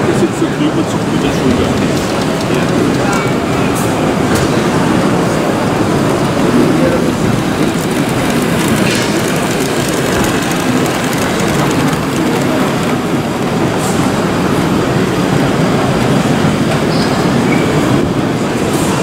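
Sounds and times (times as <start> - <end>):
chatter of voices: 0.0 - 16.0
model train rolling on track: 0.0 - 19.0.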